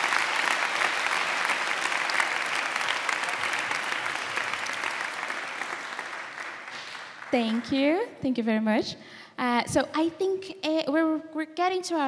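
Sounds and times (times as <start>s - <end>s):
large audience applauding: 0.0s - 8.0s.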